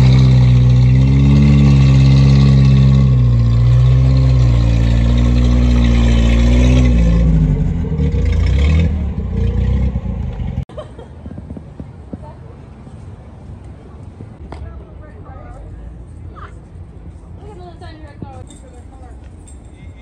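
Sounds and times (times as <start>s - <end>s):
car exhaust at low revs: 0.0s - 10.6s.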